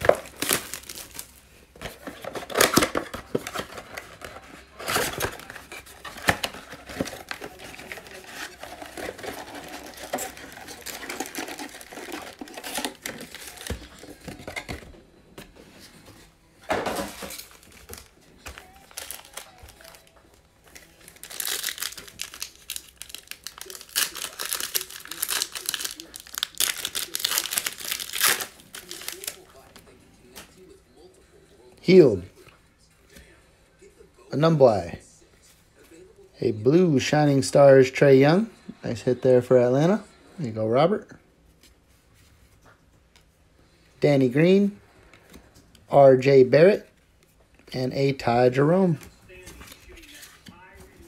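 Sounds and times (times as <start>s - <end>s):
foil pack tearing: 0.0s - 1.4s, 4.3s - 14.0s, 17.3s - 20.1s, 20.8s - 29.5s
foil packs crinkling: 0.0s - 14.8s, 17.0s - 29.8s.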